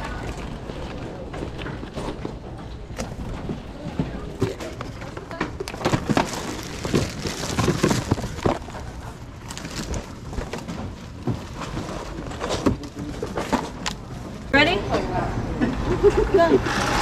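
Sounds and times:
boxes clattering being handled: 0:00.2 - 0:14.5
wire shopping cart rattling: 0:05.7 - 0:13.9.

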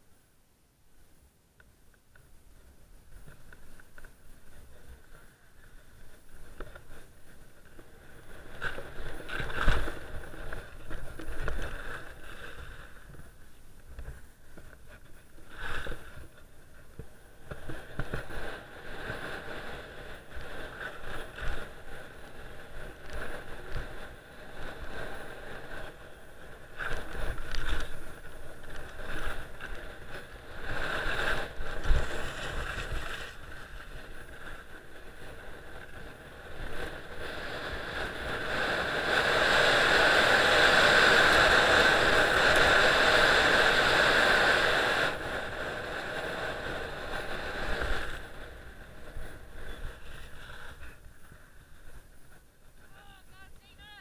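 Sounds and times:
skis scraping over snow: 0:02.6 - 0:54.0
wind on microphone: 0:14.9 - 0:52.9.

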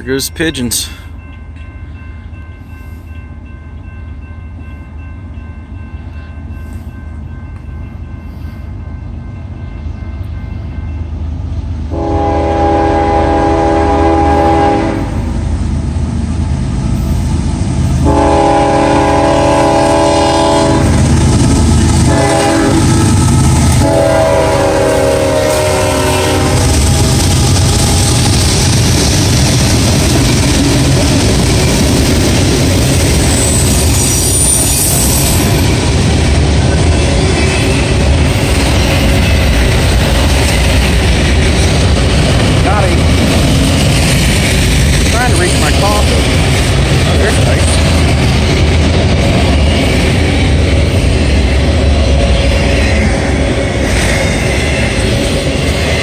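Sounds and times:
freight train rumbling: 0:00.0 - 0:56.0
rail cars clattering: 0:00.0 - 0:56.0
train air horn blasts: 0:11.9 - 0:15.3, 0:18.0 - 0:21.0, 0:22.0 - 0:23.0, 0:23.7 - 0:26.8.

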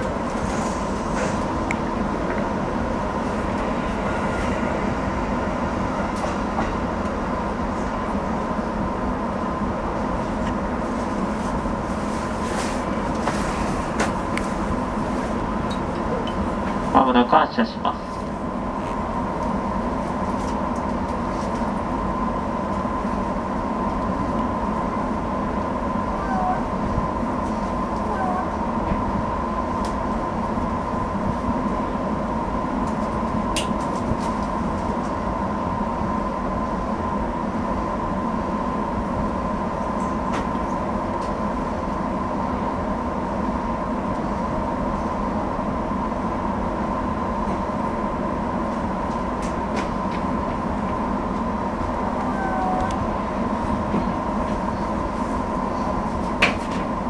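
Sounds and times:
constant high whine: 0:00.0 - 0:57.0
electric train humming: 0:00.0 - 0:57.0.

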